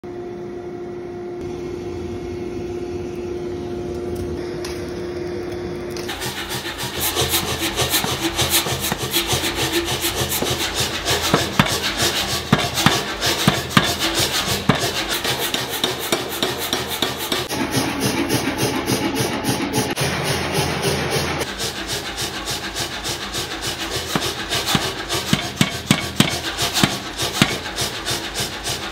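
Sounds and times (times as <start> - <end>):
forge humming: 0.0 - 28.9
power hammer striking hot steel: 6.0 - 28.9.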